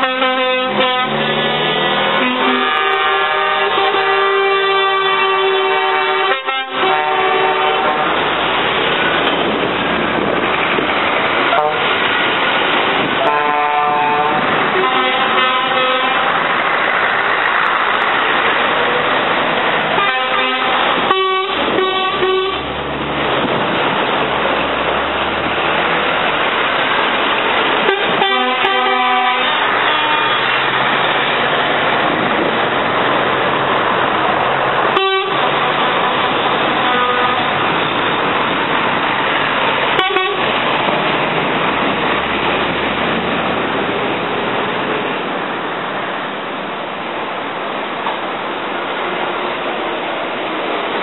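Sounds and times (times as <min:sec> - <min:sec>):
air horn toots: 0:00.0 - 0:08.2, 0:11.5 - 0:12.0, 0:13.2 - 0:16.4, 0:19.9 - 0:22.8, 0:27.8 - 0:30.7, 0:34.9 - 0:37.6, 0:40.0 - 0:40.5
diesel trucks driving past: 0:00.0 - 0:51.0.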